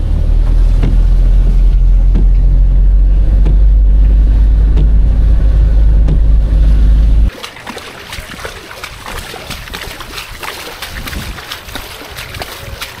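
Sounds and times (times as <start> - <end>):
car cabin rumble: 0.0 - 7.3
rippling floodwater: 0.0 - 13.0
wind on microphone: 8.3 - 13.0.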